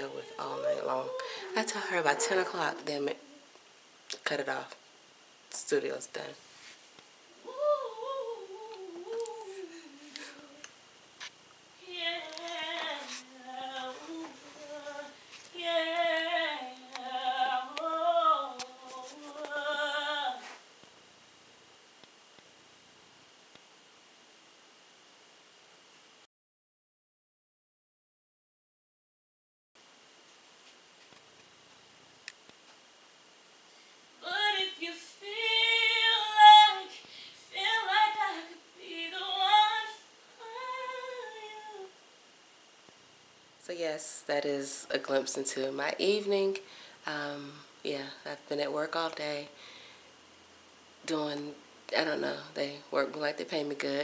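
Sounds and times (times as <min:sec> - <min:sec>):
girl singing behind a door: 0:00.0 - 0:03.5, 0:07.3 - 0:10.8, 0:11.8 - 0:20.6, 0:34.2 - 0:42.0.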